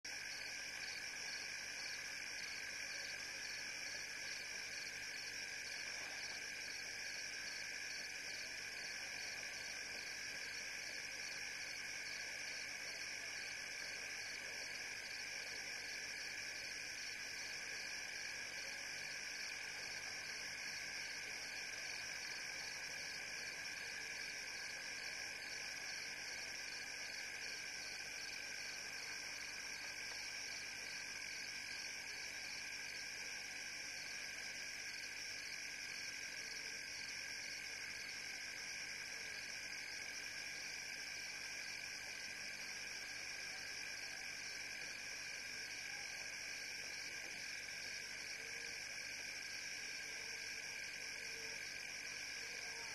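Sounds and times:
frogs and insects trilling: 38.0s - 52.9s.

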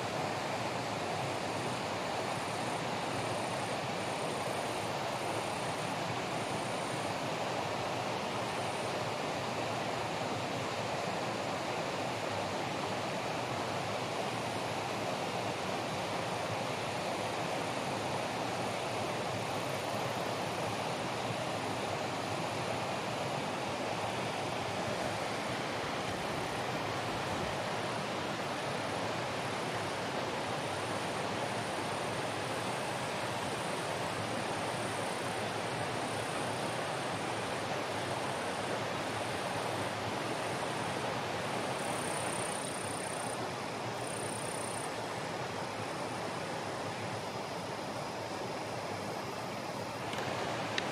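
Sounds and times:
rushing water: 0.0s - 50.9s.

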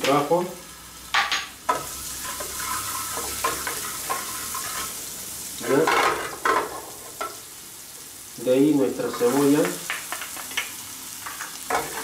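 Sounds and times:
garlic sizzling in oil: 0.0s - 12.0s
wooden spoon scraping a pan: 1.7s - 5.0s, 9.0s - 12.0s.

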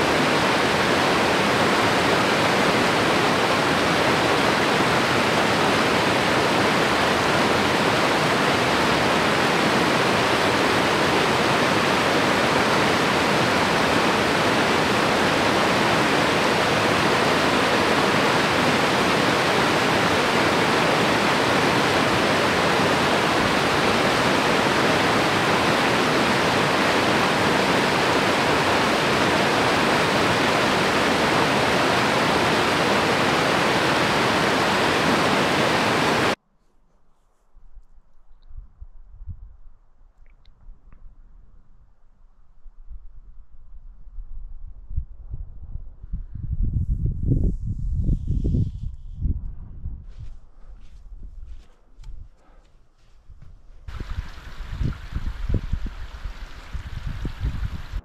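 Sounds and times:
river rushing over rocks: 0.0s - 36.4s.

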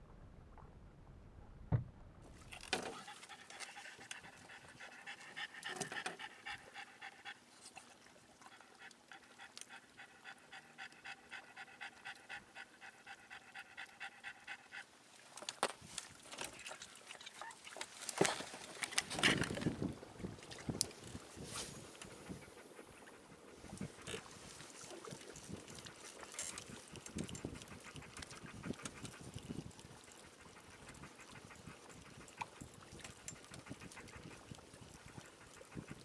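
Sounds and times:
dog panting: 2.8s - 7.5s, 8.5s - 14.9s, 22.0s - 36.0s.

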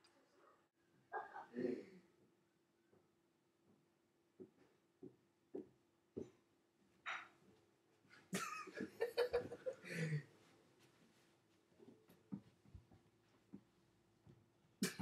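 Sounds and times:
man laughing: 8.4s - 10.2s.

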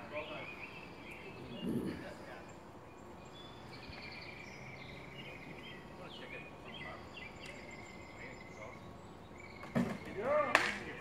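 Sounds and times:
birds chirping: 0.0s - 11.0s
outdoor background noise: 0.0s - 11.0s.

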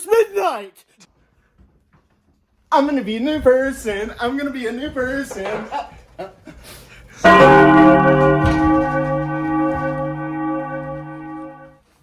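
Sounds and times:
large church bell ringing: 7.2s - 11.8s.

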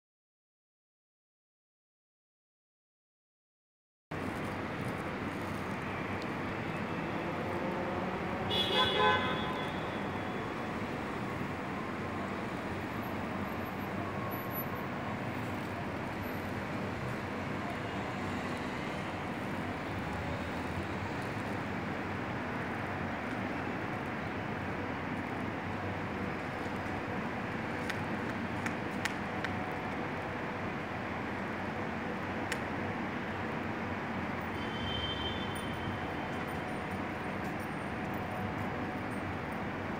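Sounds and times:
street traffic noise: 4.1s - 39.9s
vehicle horn toot: 8.5s - 10.0s, 34.5s - 36.0s.

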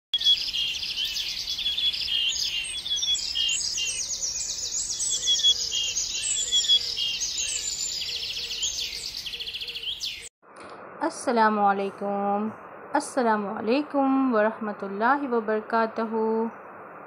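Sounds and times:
small birds chirping and trilling: 0.2s - 10.3s.

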